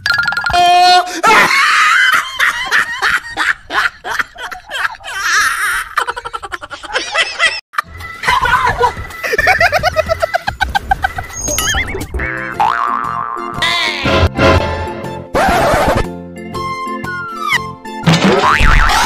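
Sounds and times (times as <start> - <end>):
laughter in quick bursts: 1.3 - 7.6, 8.5 - 11.4
comic music: 8.1 - 19.0.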